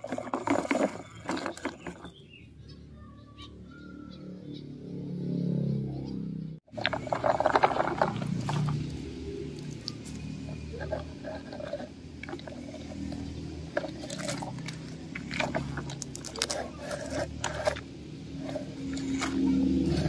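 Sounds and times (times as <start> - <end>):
toy truck wheels crunching leaves: 0.0 - 2.2, 6.7 - 20.0.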